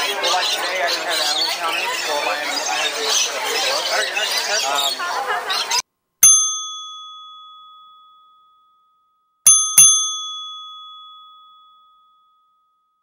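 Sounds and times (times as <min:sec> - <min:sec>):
bell chime dings: 0:06.2 - 0:13.0.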